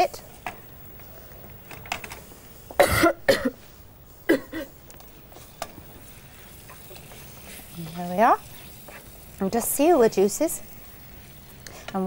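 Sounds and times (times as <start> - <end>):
person coughing: 2.8 - 3.6, 4.3 - 4.7
meat sizzling in fat: 4.2 - 12.0.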